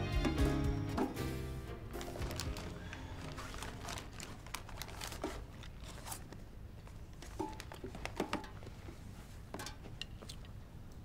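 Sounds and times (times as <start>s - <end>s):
fabric rustling: 2.0s - 9.4s.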